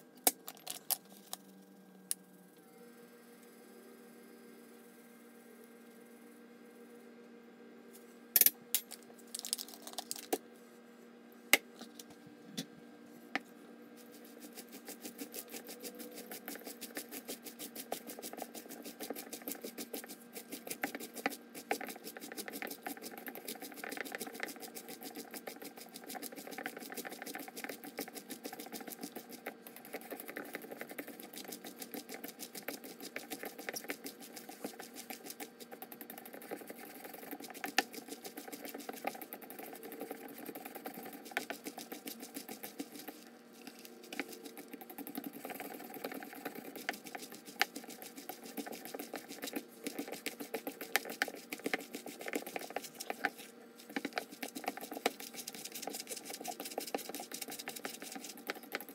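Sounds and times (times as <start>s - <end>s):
hands kneading wet cabbage: 13.9s - 58.9s.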